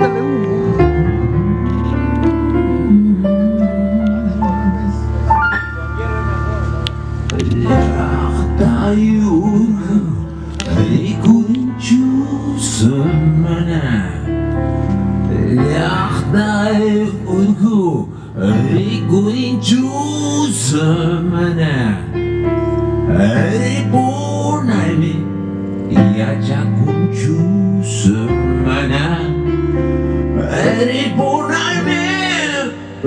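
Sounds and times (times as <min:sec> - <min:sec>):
live band playing blues: 0:00.0 - 0:13.6
keyboard and bass chords: 0:00.0 - 0:33.0.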